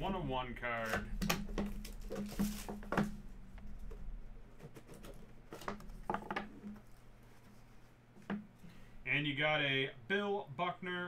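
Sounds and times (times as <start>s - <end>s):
box handling knocks: 1.0s - 4.0s, 4.6s - 6.9s.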